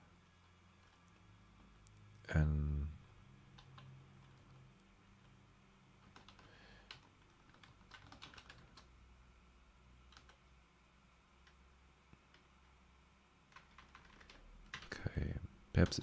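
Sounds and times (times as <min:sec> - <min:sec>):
faint keyboard typing: 0:00.2 - 0:02.2, 0:03.5 - 0:05.4, 0:06.0 - 0:09.0, 0:09.9 - 0:10.6, 0:11.3 - 0:12.8, 0:13.4 - 0:16.0.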